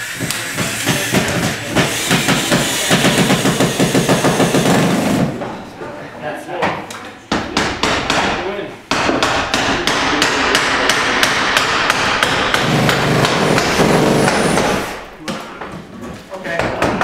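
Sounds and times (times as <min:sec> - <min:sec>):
hammer driving nails into wood: 0:00.2 - 0:05.6, 0:07.3 - 0:15.0.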